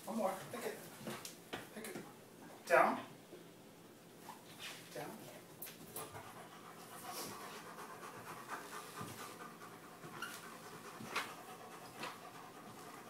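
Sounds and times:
dog panting: 5.8s - 13.0s.

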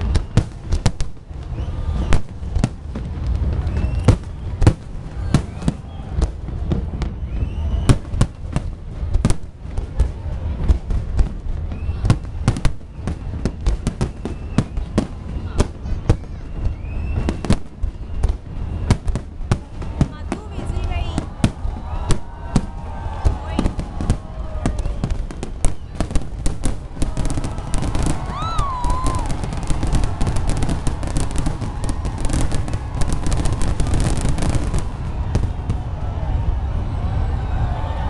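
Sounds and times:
fireworks bangs: 0.0s - 38.0s.

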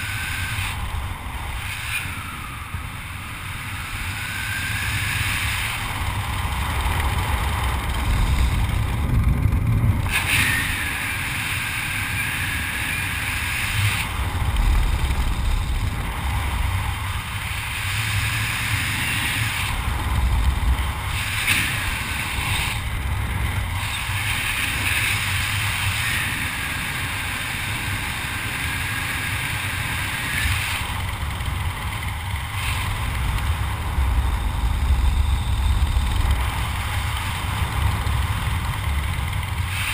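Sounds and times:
whistling hiss: 0.0s - 0.9s, 1.5s - 6.0s, 10.2s - 14.1s, 23.8s - 30.9s
wind rushing over microphone: 0.0s - 39.9s.

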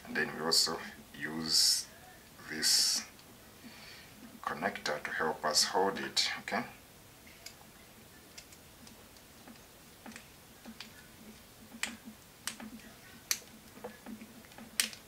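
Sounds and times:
wire and plastic connector clicking: 14.5s - 15.0s.

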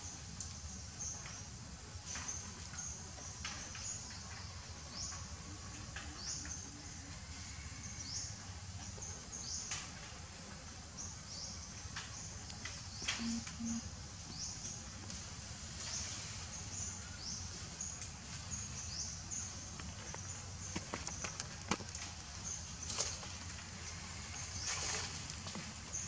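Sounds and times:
high rising chirps: 13.2s - 13.8s.

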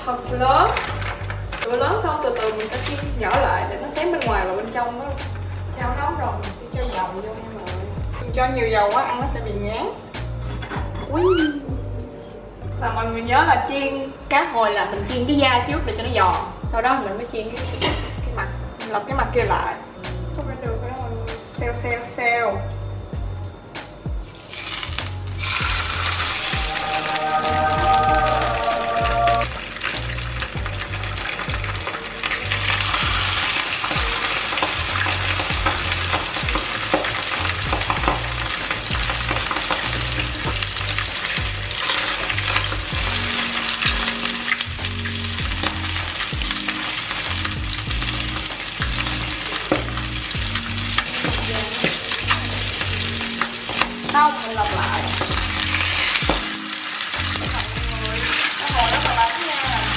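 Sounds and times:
fish sizzling in hot oil: 24.2s - 59.9s.

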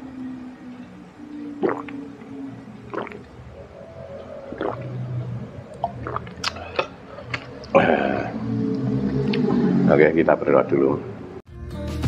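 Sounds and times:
low throat sounds: 0.4s - 10.0s
person gulping a drink: 1.6s - 2.0s, 2.8s - 3.4s, 4.4s - 5.0s, 5.7s - 8.3s.

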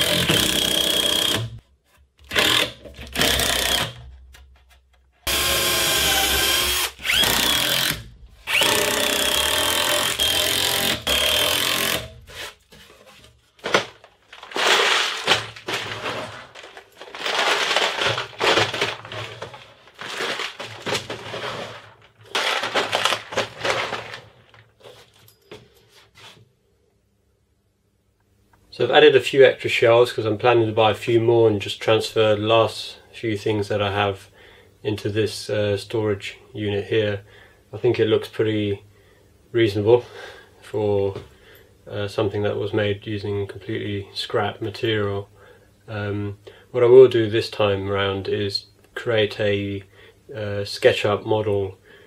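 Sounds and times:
cordless driver whining: 5.3s - 12.1s
plastic cases scraping and knocking: 12.4s - 25.2s.

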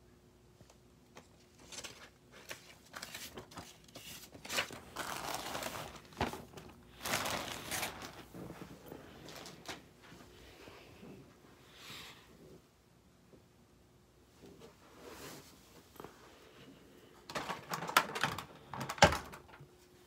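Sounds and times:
paper and plastic crinkling: 1.1s - 10.2s, 17.3s - 19.5s.

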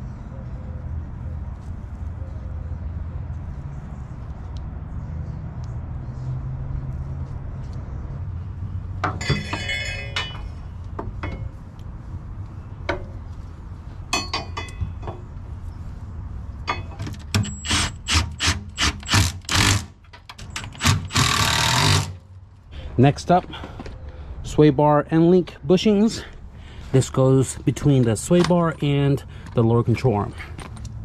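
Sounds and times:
ringing metallic clatter: 9.0s - 10.6s, 14.1s - 15.2s, 16.7s - 17.8s
metal tools clinking: 9.0s - 11.5s, 14.1s - 15.2s, 16.7s - 17.9s.

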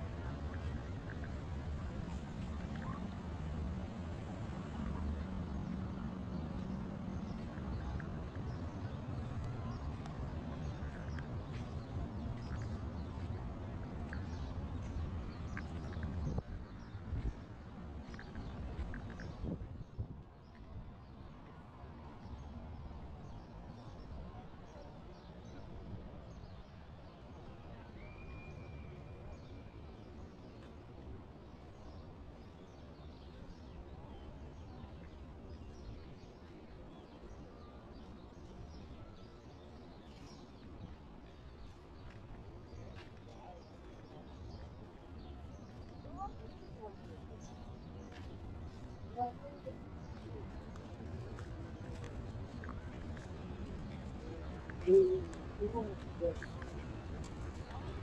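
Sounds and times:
low outdoor rumble: 0.0s - 24.5s.

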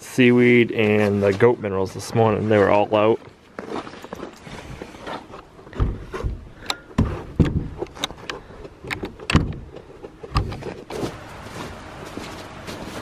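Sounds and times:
metal latch clicking and rattling: 6.6s - 10.8s.

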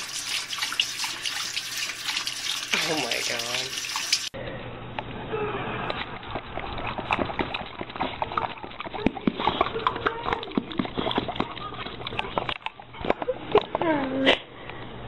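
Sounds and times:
water splashing: 0.0s - 4.4s.

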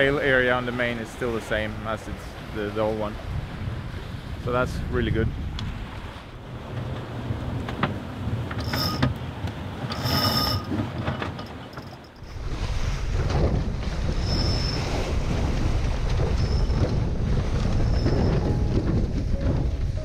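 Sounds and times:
water rushing along hull: 0.0s - 20.0s
wind buffeting microphone: 2.4s - 10.0s, 12.2s - 20.0s
high squeak: 8.6s - 9.1s, 9.9s - 10.7s, 14.2s - 15.0s, 16.4s - 16.8s, 17.8s - 18.8s.

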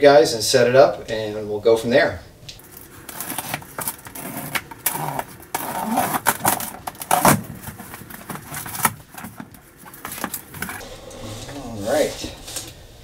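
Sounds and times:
cardboard box being torn open: 3.0s - 9.4s.

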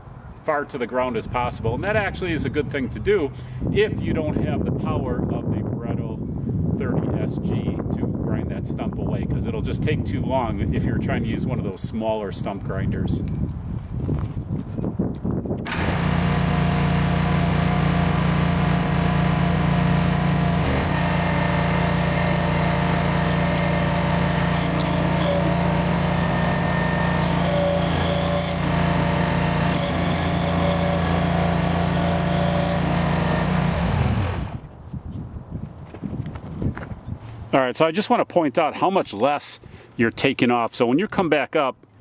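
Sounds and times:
cutter wheel grinding stump: 15.6s - 34.7s
stump grinder engine running: 15.7s - 34.7s.

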